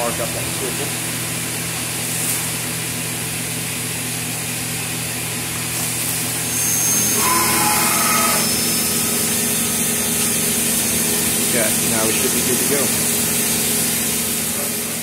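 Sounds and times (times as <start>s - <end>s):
milling machine hum: 0.0s - 15.0s
coolant spray hissing: 5.5s - 15.0s
brief machine whine: 6.3s - 13.9s.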